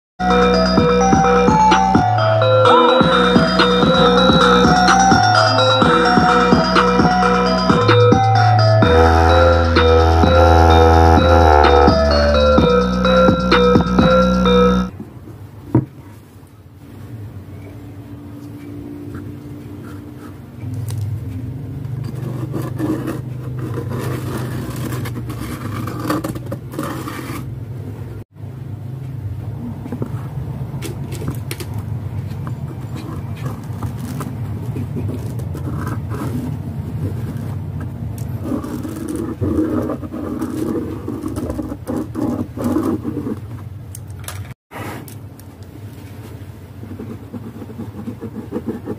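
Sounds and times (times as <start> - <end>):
pen scraping around speaker driver: 22.0 - 27.5, 32.6 - 43.6.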